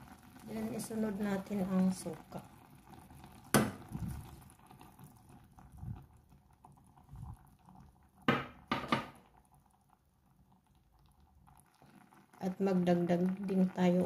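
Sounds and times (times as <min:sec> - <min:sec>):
vinegar pouring into a pot: 0:00.0 - 0:14.0
sharp knocks: 0:08.3 - 0:09.2.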